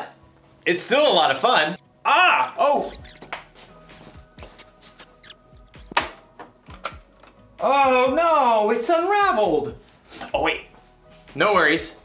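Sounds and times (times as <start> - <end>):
faint background music: 0.0 - 12.0
cassette tapes clicking and rattling: 5.7 - 7.4.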